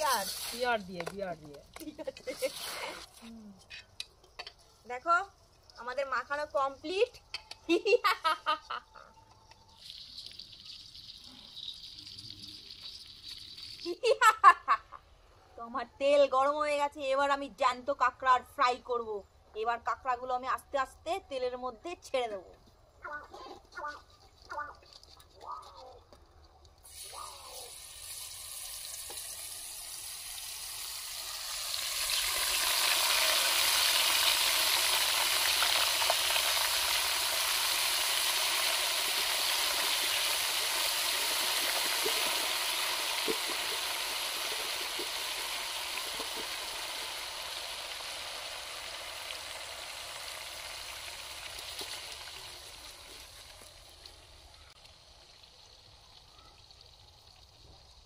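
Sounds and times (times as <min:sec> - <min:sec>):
hot oil sizzling: 0:00.0 - 0:03.2, 0:09.7 - 0:14.6, 0:26.8 - 0:58.0.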